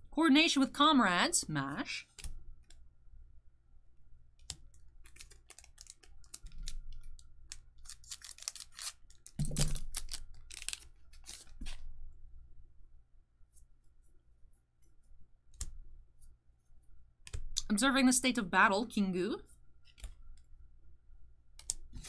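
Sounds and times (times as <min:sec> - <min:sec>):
trading cards clicking and rustling: 0:04.5 - 0:11.8.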